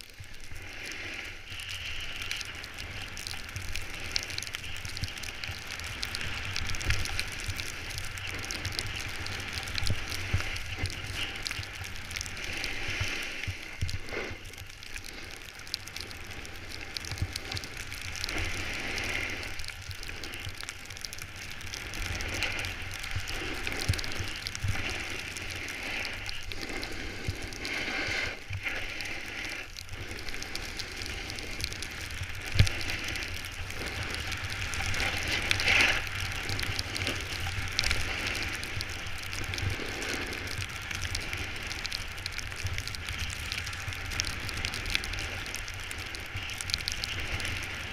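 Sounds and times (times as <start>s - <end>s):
snowboard scraping on snow: 23.8s - 29.6s.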